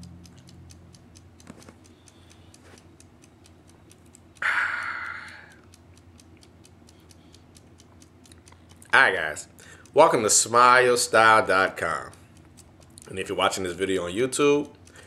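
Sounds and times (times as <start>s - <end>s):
steady ticking: 0.0s - 15.0s
man exhaling ahh: 4.4s - 5.5s.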